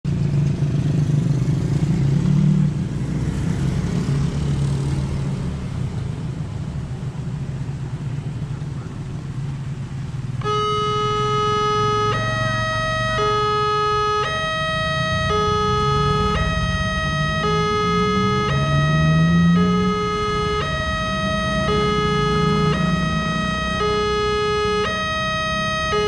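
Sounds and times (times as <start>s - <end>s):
road traffic rumble: 0.1s - 26.0s
two-tone crossing warning alarm: 10.4s - 26.0s.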